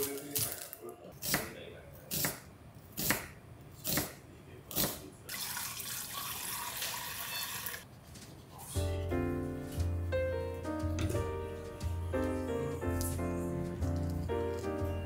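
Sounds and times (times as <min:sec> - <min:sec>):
knife slicing onion on board: 0:02.1 - 0:02.4.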